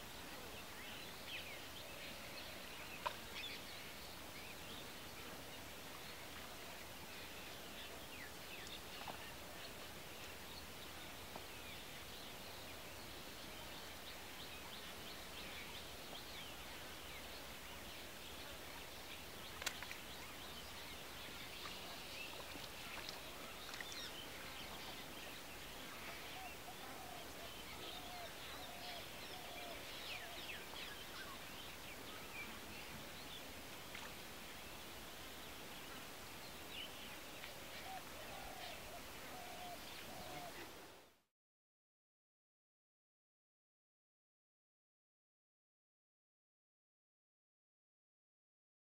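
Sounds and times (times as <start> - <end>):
faint steady hiss: 0.0 - 41.3
lower repeated bird calls: 36.8 - 41.0.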